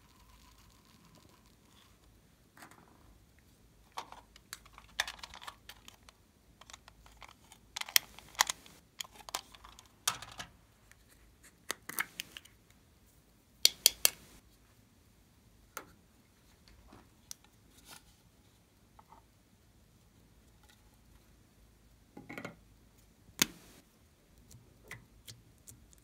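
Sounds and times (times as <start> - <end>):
plastic clicks and rattles: 3.9 - 10.5.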